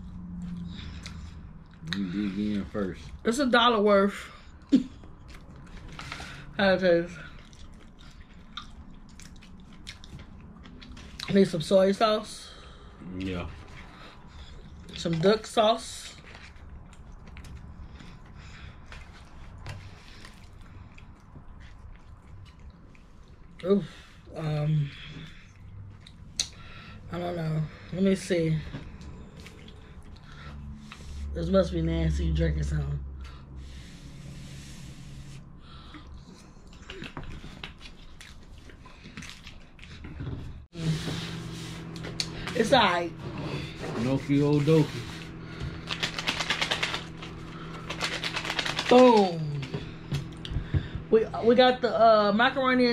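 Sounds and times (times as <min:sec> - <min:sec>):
steady low hum: 0:00.0 - 0:52.9
person chewing: 0:04.6 - 0:06.2, 0:07.3 - 0:11.3, 0:16.2 - 0:23.6, 0:35.7 - 0:40.2.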